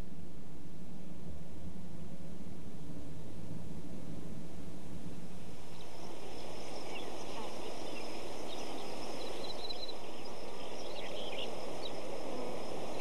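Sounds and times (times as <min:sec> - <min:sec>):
low hum: 0:00.0 - 0:13.0
small birds chirping: 0:05.7 - 0:13.0.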